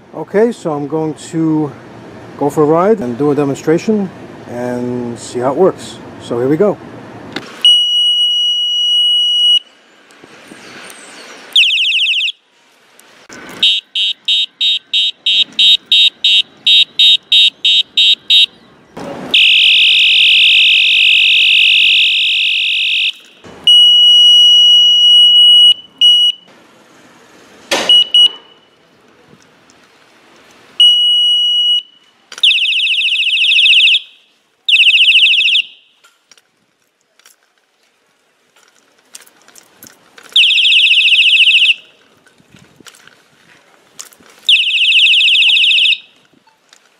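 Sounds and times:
electronic bicycle horn beeping: 7.6s - 9.7s, 13.6s - 18.6s, 19.4s - 26.5s, 27.9s - 28.9s, 30.8s - 36.0s, 44.5s - 46.2s.

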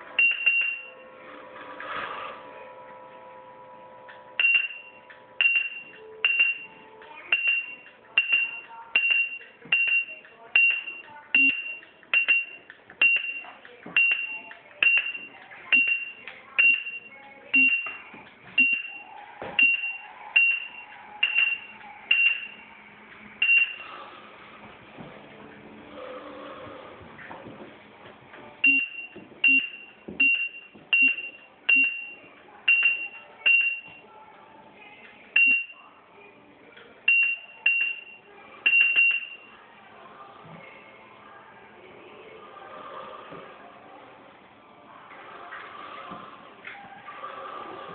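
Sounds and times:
short high beeps with clicks: 0.2s - 0.9s, 4.4s - 6.7s, 28.6s - 34.0s.

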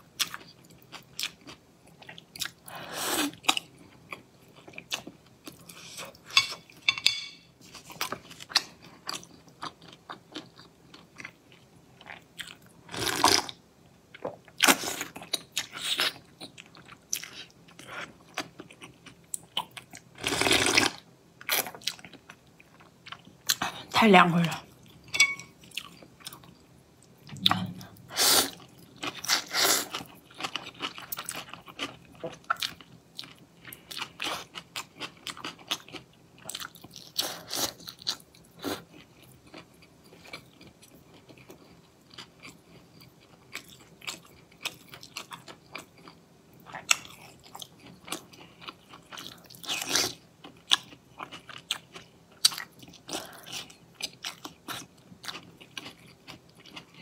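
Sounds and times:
wet chewing and crunching: 28.5s - 57.0s.

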